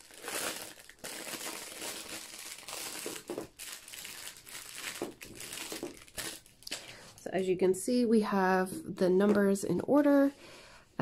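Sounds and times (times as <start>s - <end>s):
plastic bag crinkling: 0.0s - 7.4s.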